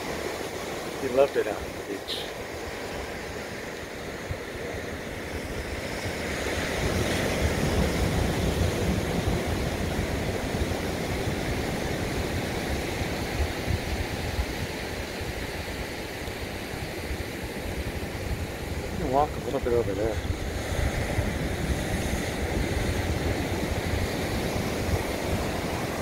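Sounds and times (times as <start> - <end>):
ocean surf breaking on rocks: 0.0 - 26.0
wind gusts on microphone: 0.0 - 26.0.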